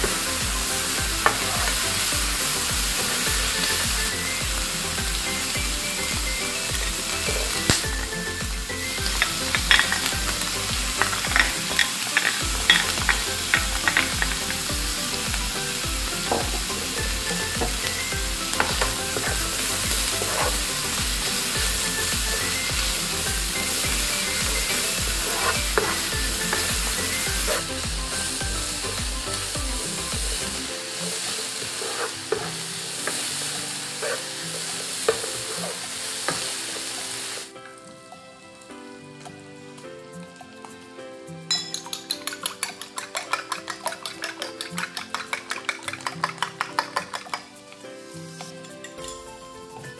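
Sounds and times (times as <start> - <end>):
bacon and onion sizzling: 0.0 - 49.9
spatula scraping and tapping pan: 0.1 - 2.1, 8.9 - 28.3, 30.3 - 37.2, 41.5 - 47.6.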